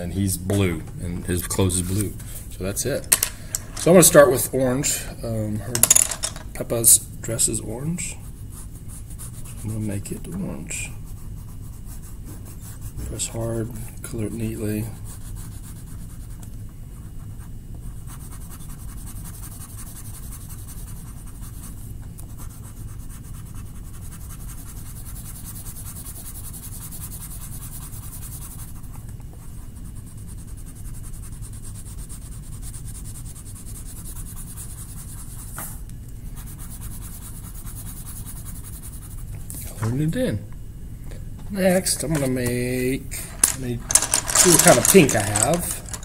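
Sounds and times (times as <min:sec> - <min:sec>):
scratchy scribbling on paper: 0:08.2 - 0:10.0, 0:10.7 - 0:13.3, 0:14.9 - 0:16.4, 0:17.0 - 0:35.5, 0:36.4 - 0:39.2.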